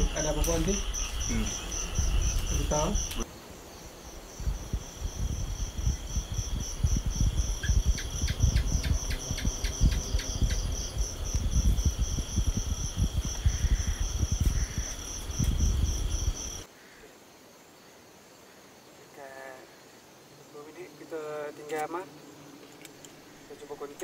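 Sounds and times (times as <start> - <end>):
night insects chirping: 0.0 - 24.0
low microphone rumble: 4.3 - 16.6.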